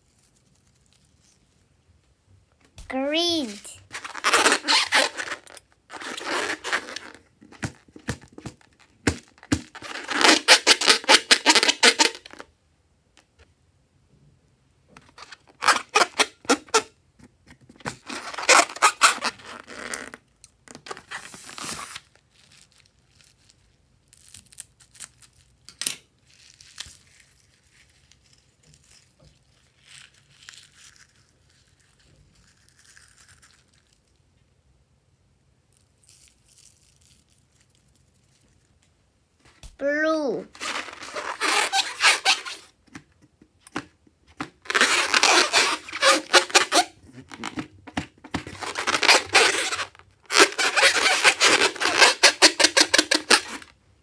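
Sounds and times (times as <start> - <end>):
hands rubbing rubber balloon: 3.9 - 12.1, 17.8 - 20.2, 40.6 - 42.7, 44.4 - 47.6, 48.3 - 53.7.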